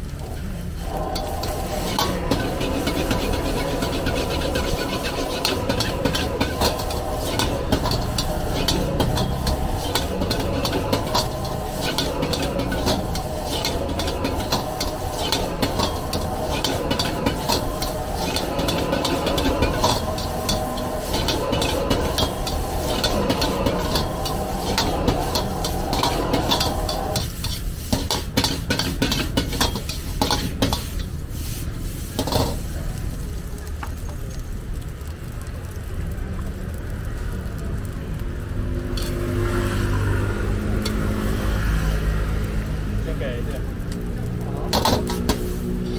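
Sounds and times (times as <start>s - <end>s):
food sizzling: 0.0s - 45.9s
metal ladle scraping a wok: 0.3s - 32.8s, 38.9s - 41.8s, 44.6s - 45.9s
steady hum: 0.6s - 28.4s.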